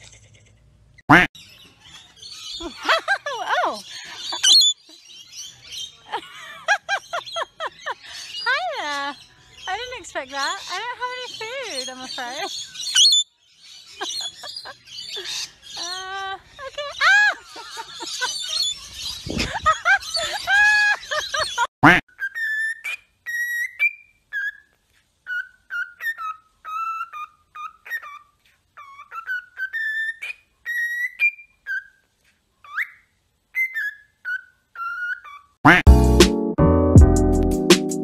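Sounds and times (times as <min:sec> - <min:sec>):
birds calling: 0:01.1 - 0:24.6
woman laughing: 0:02.6 - 0:04.6, 0:06.1 - 0:09.1, 0:14.0 - 0:21.7.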